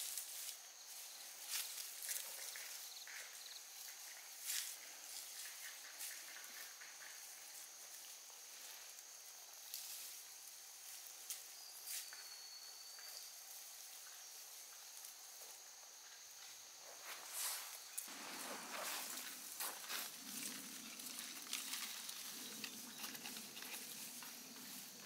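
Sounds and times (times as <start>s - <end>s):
grass rustling and snapping: 17.1s - 25.0s.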